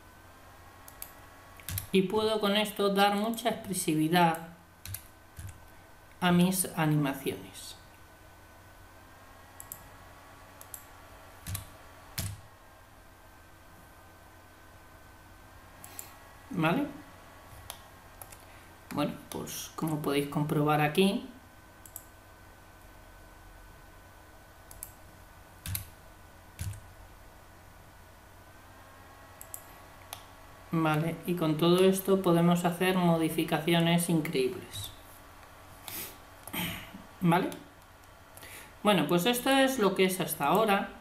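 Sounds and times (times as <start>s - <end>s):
faint steady hum: 0.0s - 41.0s
keyboard and mouse clicks: 0.8s - 1.9s, 4.3s - 5.7s, 9.6s - 9.9s, 10.6s - 12.4s, 17.6s - 20.0s, 24.7s - 25.0s, 25.6s - 25.9s, 26.6s - 26.9s, 29.4s - 30.3s.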